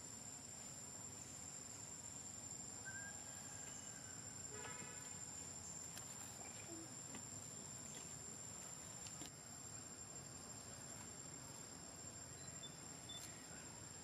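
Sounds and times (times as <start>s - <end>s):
faint chirps: 2.7s - 9.0s, 10.6s - 14.0s
high-pitched insect drone: 11.6s - 14.0s.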